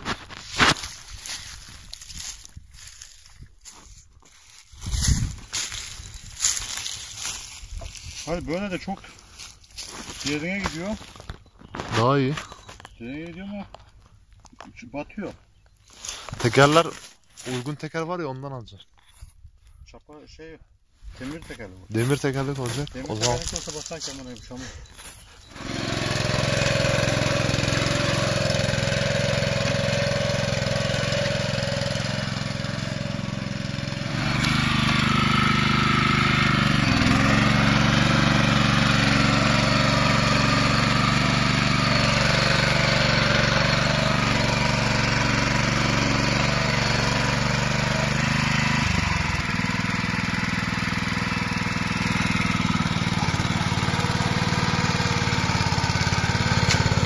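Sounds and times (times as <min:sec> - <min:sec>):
tiller engine labouring: 0:22.2 - 0:57.0.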